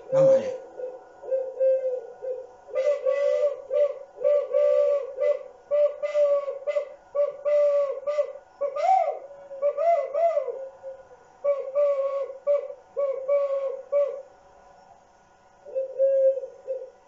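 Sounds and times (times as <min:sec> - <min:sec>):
homemade flute hooting notes: 0:00.0 - 0:14.3.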